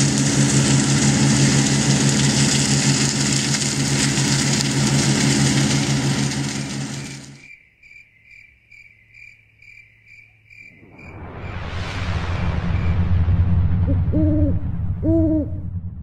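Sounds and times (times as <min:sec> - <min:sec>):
farm machinery engine: 0:00.0 - 0:07.5
cricket chirping: 0:07.4 - 0:11.1.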